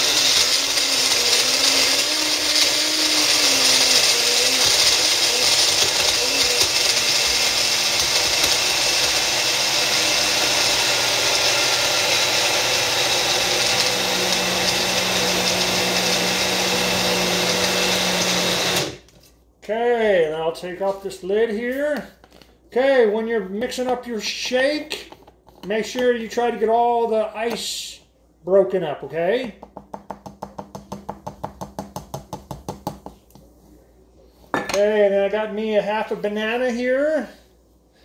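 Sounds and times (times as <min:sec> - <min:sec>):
blender crushing ice: 0:00.0 - 0:19.0.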